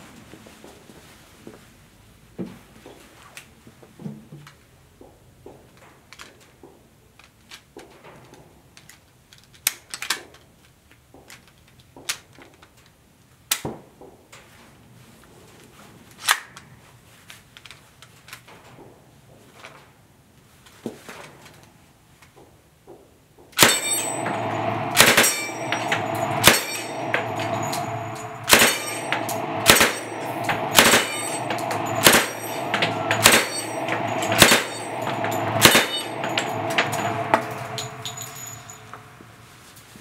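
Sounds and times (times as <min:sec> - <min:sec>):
submachine gun automatic fire: 0:23.6 - 0:37.3
steel target plates clanging: 0:23.6 - 0:39.3.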